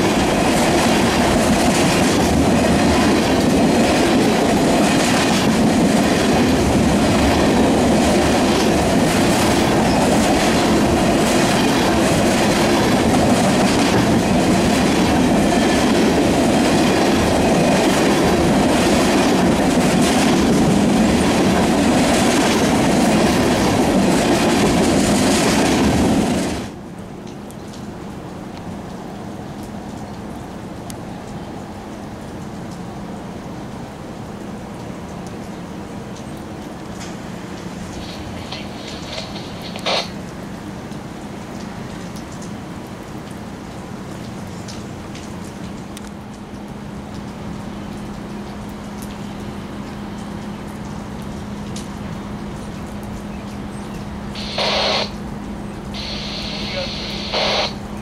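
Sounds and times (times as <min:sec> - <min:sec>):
wheels clacking over rail joints: 0:00.0 - 0:26.6
freight train rolling past: 0:00.0 - 0:27.0, 0:35.8 - 0:41.3, 0:54.2 - 0:58.0.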